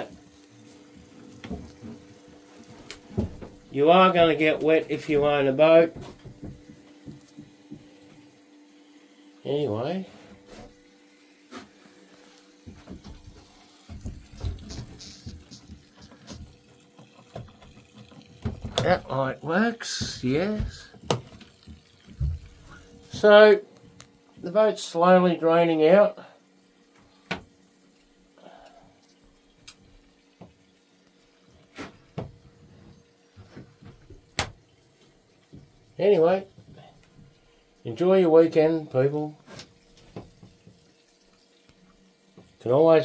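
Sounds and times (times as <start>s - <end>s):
pump motor hum: 0.0s - 43.0s
water splashing and trickling: 0.0s - 43.0s
knocks and low thumps: 5.9s - 8.0s.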